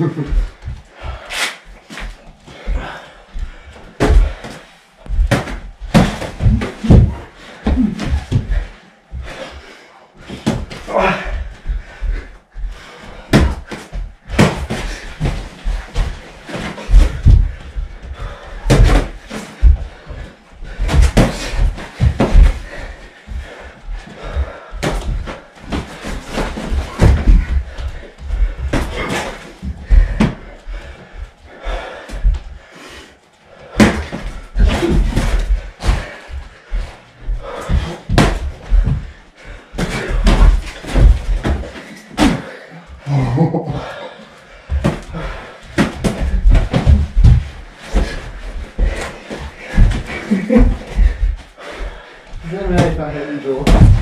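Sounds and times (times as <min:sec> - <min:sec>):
feet thudding on floor: 0:00.1 - 0:09.6, 0:10.2 - 0:32.7, 0:33.6 - 0:42.6, 0:43.6 - 0:54.0
boxing gloves thudding: 0:05.2 - 0:08.6, 0:13.3 - 0:17.6, 0:18.6 - 0:19.8, 0:20.8 - 0:22.7, 0:33.8 - 0:36.1, 0:37.4 - 0:39.0, 0:45.8 - 0:48.2, 0:53.6 - 0:54.0
boxing gloves punching: 0:53.6 - 0:54.0.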